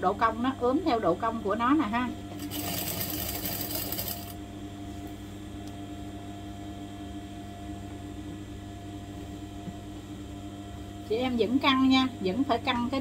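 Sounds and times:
steady low hum: 0.0s - 13.0s
sewing machine stitching: 2.4s - 4.4s.

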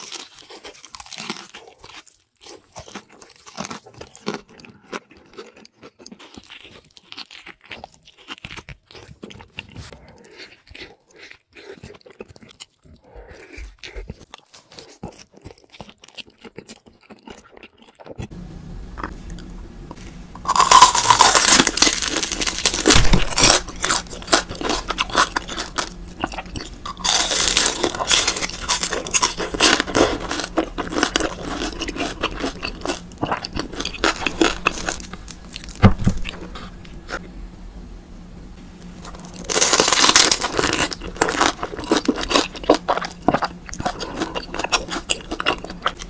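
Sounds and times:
loud crunching bites: 0.0s - 9.7s, 20.4s - 37.2s, 39.0s - 46.0s
soft chewing: 0.0s - 18.3s, 19.0s - 37.3s, 38.9s - 46.0s.

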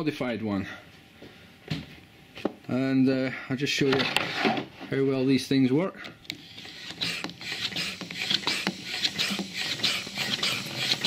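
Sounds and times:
pump leaking air: 6.4s - 11.0s
hand pump pressing: 6.6s - 11.0s.

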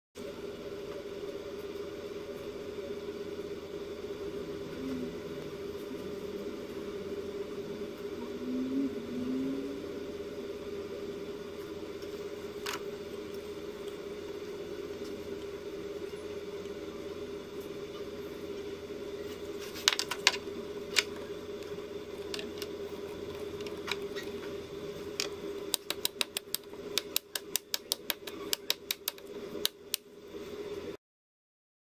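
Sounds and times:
steady low hum: 0.2s - 31.0s.

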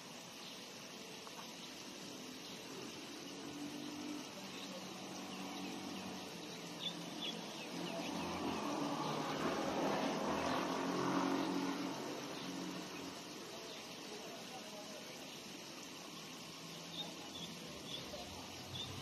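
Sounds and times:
motor vehicle passing: 3.2s - 13.5s.

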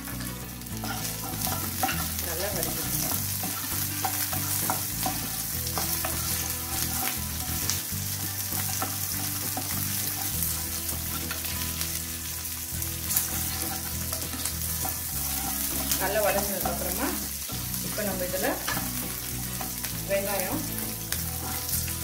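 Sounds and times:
vegetables sizzling in oil: 0.0s - 22.0s
wooden spatula scraping pan: 0.8s - 7.8s, 13.1s - 19.8s, 20.7s - 22.0s.

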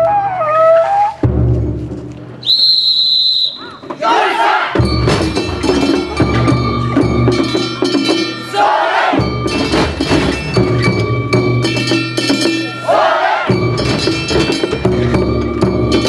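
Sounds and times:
clanging metal gongs and bells: 4.8s - 16.0s.

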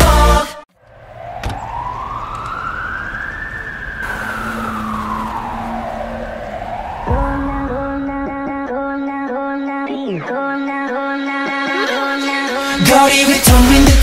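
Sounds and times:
siren-like synth wail: 0.8s - 9.2s
dance music beat: 7.1s - 14.0s.

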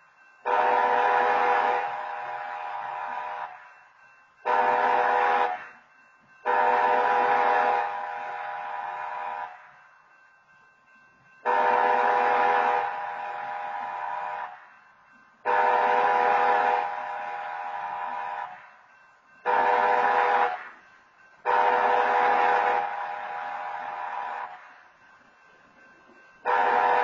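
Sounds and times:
train horn blasts: 0.4s - 3.6s, 4.4s - 5.8s, 6.4s - 9.7s, 11.4s - 14.6s, 15.4s - 18.7s, 19.4s - 20.8s, 21.4s - 24.7s, 26.4s - 27.0s.

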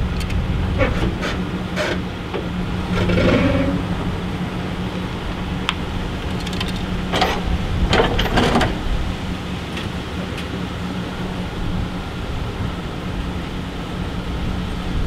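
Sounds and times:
metal clanks and rattles: 0.0s - 4.3s, 5.6s - 9.1s
pickup truck engine running: 0.0s - 15.0s
light ticks: 0.1s - 0.4s.

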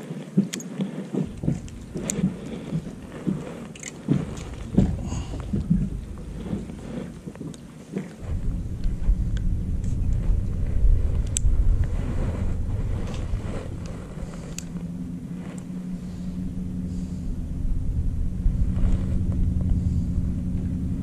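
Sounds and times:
outboard motor humming: 0.0s - 21.0s.

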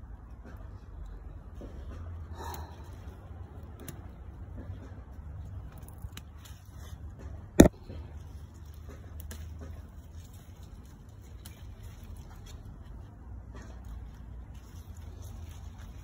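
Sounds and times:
leaves rustling: 8.2s - 13.2s, 13.8s - 16.0s.

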